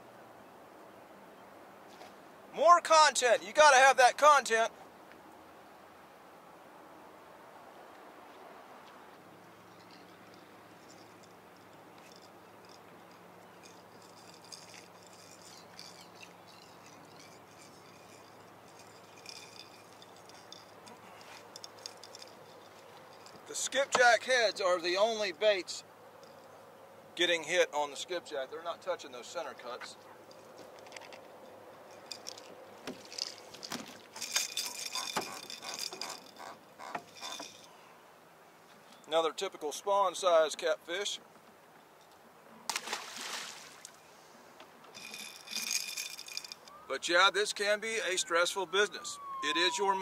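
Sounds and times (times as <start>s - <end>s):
fishing reel clicking: 12.0s - 23.4s, 34.2s - 37.7s, 45.0s - 46.7s
water splashing: 42.7s - 44.0s.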